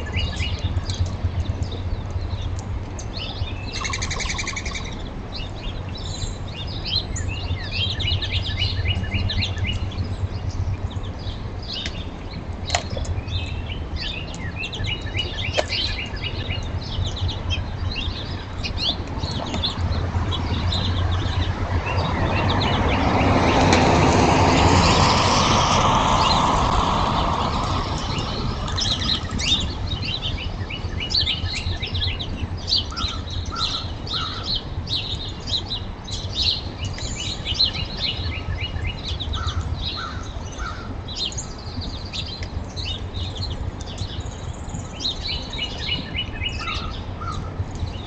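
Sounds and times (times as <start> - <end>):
small birds chirping: 0.0 - 48.0
vehicle passing by: 19.2 - 30.2.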